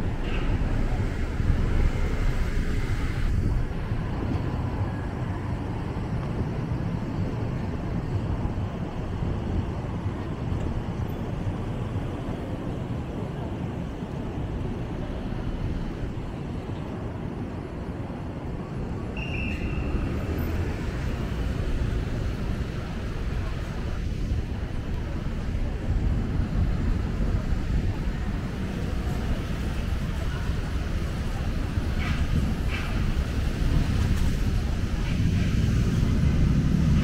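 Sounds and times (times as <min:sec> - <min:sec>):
road traffic hum: 0:00.0 - 0:37.0.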